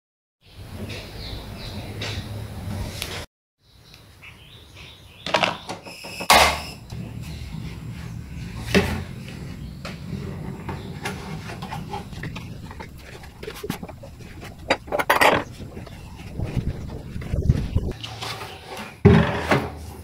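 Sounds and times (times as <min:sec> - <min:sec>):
low steady hum: 0:06.9 - 0:17.9
plastic parts knocking: 0:11.6 - 0:16.4.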